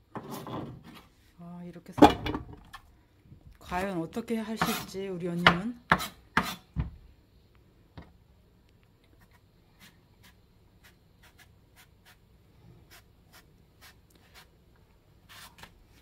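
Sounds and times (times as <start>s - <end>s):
knife scraping eggplant: 4.6s - 5.0s, 5.9s - 6.7s, 12.8s - 14.5s.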